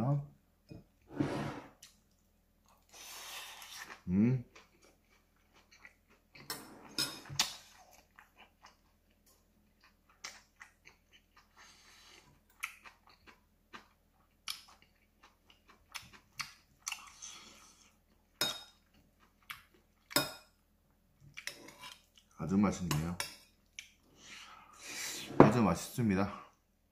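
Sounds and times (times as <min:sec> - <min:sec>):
chewing with crisp clicks: 0:03.6 - 0:06.6, 0:07.2 - 0:20.5, 0:23.0 - 0:24.0.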